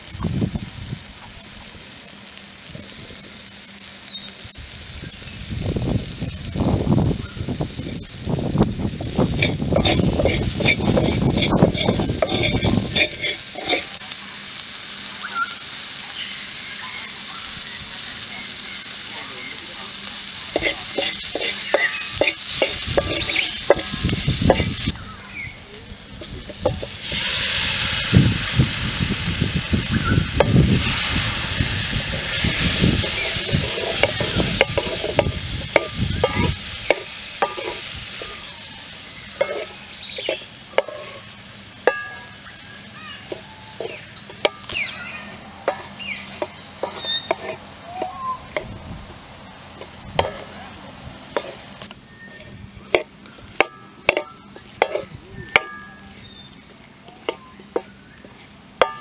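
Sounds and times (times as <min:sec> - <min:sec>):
hot oil sizzling: 0:00.0 - 0:59.0
wooden spatula scraping wok: 0:09.0 - 0:14.0, 0:20.5 - 0:24.9, 0:30.7 - 0:38.5, 0:39.2 - 0:42.2, 0:43.2 - 0:44.8, 0:45.6 - 0:48.8, 0:49.7 - 0:59.0.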